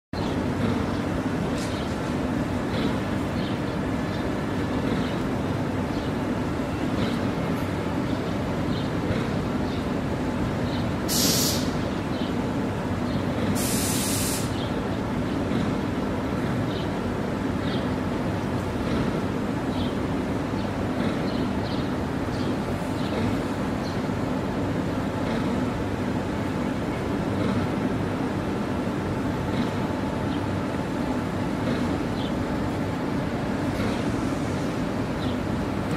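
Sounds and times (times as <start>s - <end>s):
short hisses: 11.1s - 11.8s, 13.6s - 14.6s.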